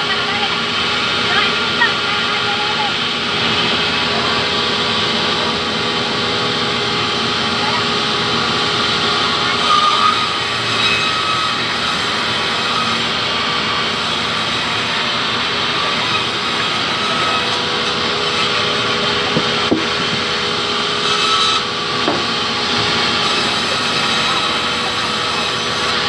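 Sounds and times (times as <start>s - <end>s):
band saw cutting wood: 0.0s - 26.0s
sharp knocks: 19.3s - 20.2s, 22.0s - 22.4s.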